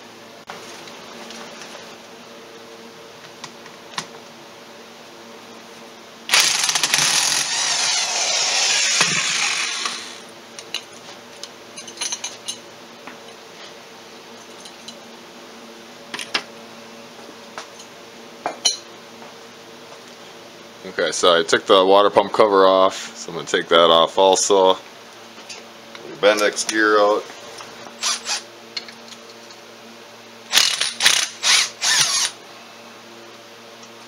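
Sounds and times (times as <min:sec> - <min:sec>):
electric impact wrench running: 0:06.3 - 0:10.3, 0:28.0 - 0:28.4, 0:30.5 - 0:32.4.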